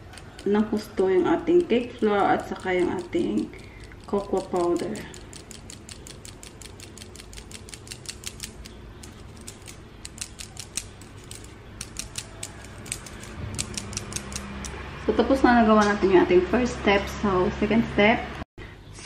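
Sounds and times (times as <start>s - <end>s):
metal sieve ticking: 0.0s - 14.8s.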